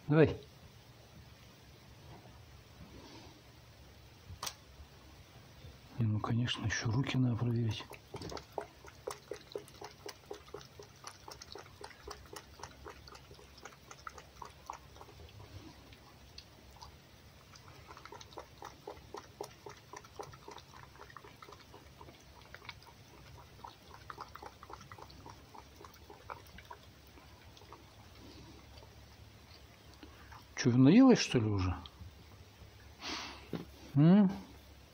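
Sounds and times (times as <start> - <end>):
fox chewing and lapping: 6.5 - 33.8.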